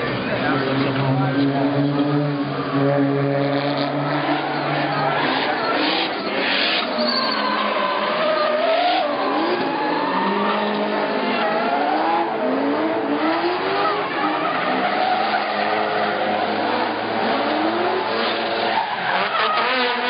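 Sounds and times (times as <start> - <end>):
car engines revving: 0.0 - 20.0
tyres squealing: 4.1 - 11.9, 13.4 - 20.0.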